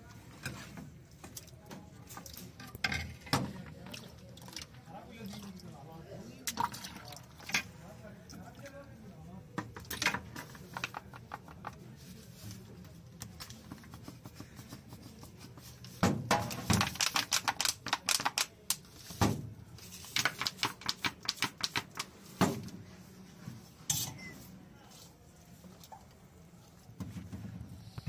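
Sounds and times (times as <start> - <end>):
plastic squeeze bottles clicking: 16.5 - 18.8.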